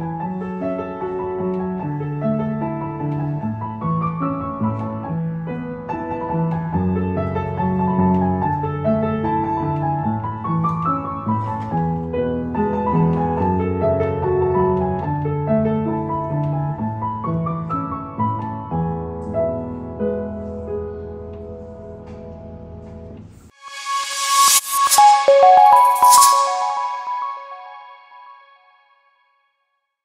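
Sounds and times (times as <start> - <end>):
upright piano playing: 23.9 - 28.4.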